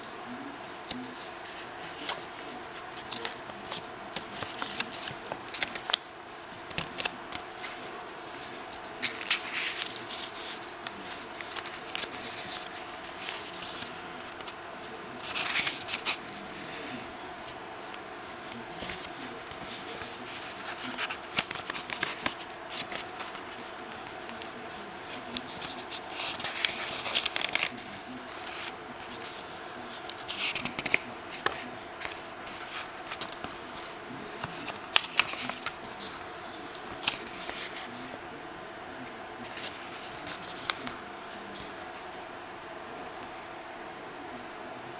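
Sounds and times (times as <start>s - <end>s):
paper pages turning and rustling: 0.6s - 38.1s, 39.4s - 42.0s.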